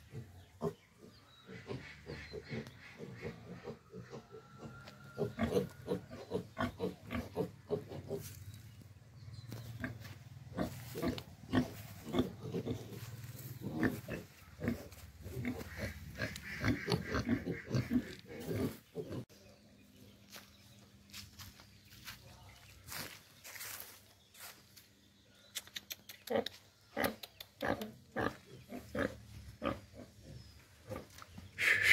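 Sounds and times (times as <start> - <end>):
pigs grunting: 0.0 - 8.4, 9.8 - 19.2, 27.0 - 31.9.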